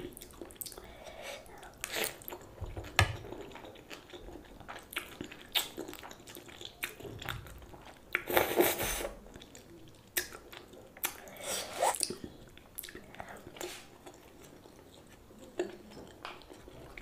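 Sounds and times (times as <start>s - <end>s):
wet chewing of noodles: 0.0s - 17.0s
noodle slurp: 11.3s - 12.2s.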